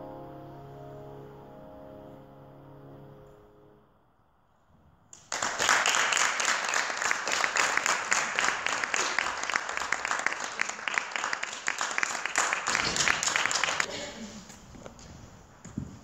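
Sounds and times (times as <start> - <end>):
audience applauding: 5.2 - 13.9.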